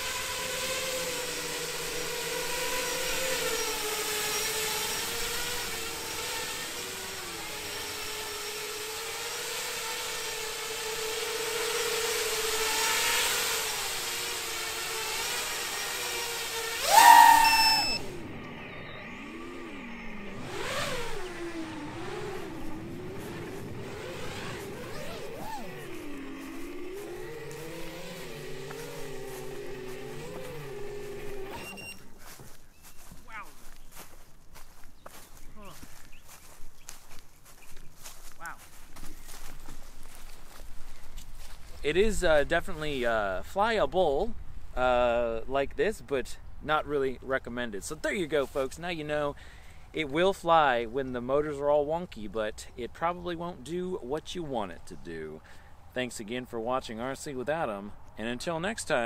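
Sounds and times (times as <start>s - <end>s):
quadcopter motors buzzing: 0.0s - 46.0s
drone dropping to ground: 16.7s - 31.9s.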